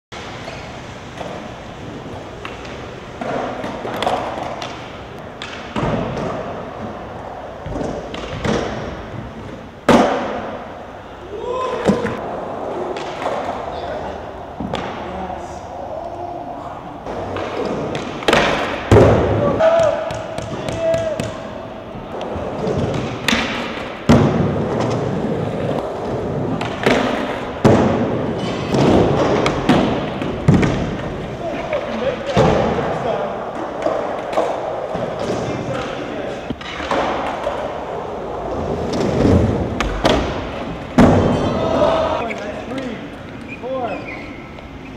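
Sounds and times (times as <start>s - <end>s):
skateboard wheels rolling on concrete: 11.6s - 15.5s, 21.8s - 43.5s
skateboard hitting ground: 17.1s - 19.4s, 22.4s - 31.2s, 38.5s - 41.6s
loud slam: 38.9s - 42.2s.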